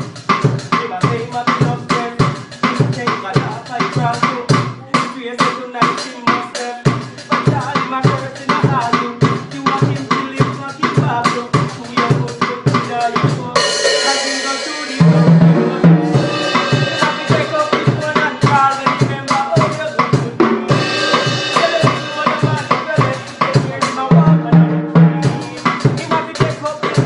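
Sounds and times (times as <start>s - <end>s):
drums playing fast beat: 0.0s - 27.0s
cymbal crash: 13.7s - 18.5s, 20.7s - 22.6s.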